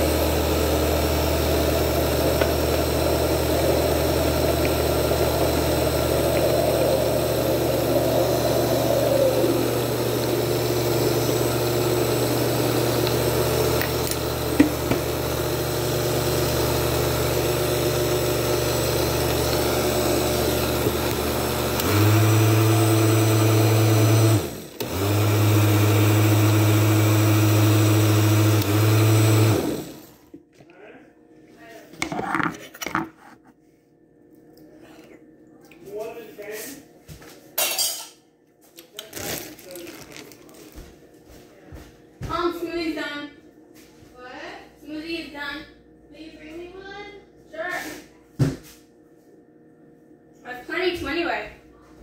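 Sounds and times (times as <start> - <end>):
blender motor running: 0.0 - 30.2.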